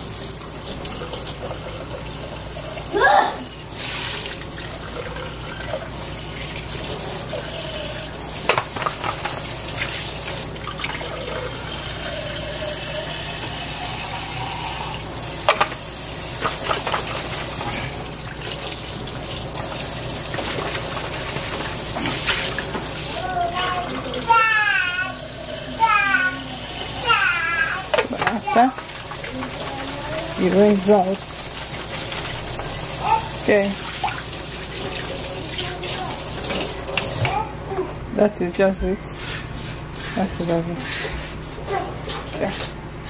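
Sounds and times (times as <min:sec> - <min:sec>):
water splashing in a metal sink: 0:00.0 - 0:38.1
kitchen tap running: 0:00.0 - 0:38.7.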